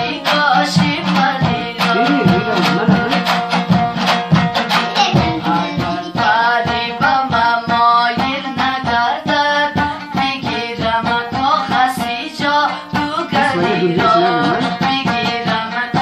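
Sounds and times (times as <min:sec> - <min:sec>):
lute strumming: 0:00.0 - 0:16.0
young man singing: 0:00.2 - 0:03.3, 0:05.0 - 0:08.3, 0:10.8 - 0:16.0.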